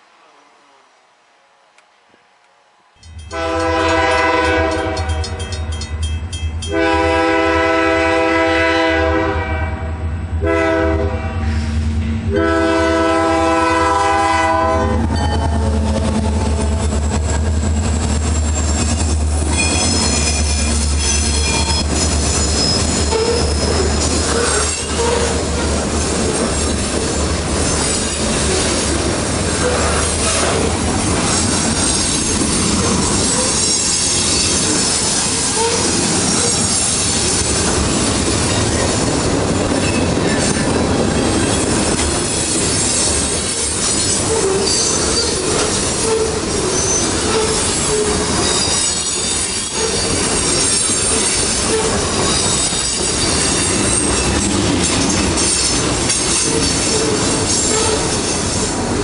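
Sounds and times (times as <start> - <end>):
train horn blowing: 2.1 - 5.6, 6.7 - 17.0, 23.1 - 25.4, 35.5 - 36.6, 47.2 - 48.2, 51.7 - 52.0, 56.5 - 58.1
diesel locomotive engine throb: 3.1 - 33.6
freight cars clickety-clack: 14.9 - 59.0
high wheel squeal: 17.9 - 25.4, 31.2 - 37.4, 42.4 - 54.6, 55.4 - 58.7.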